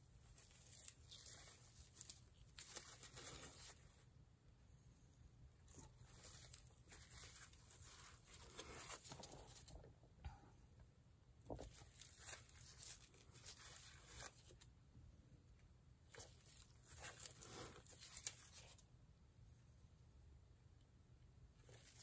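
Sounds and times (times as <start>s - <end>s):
rustling and scratching on canvas: 0.0s - 4.1s, 5.1s - 9.9s, 11.5s - 14.7s, 16.1s - 18.9s.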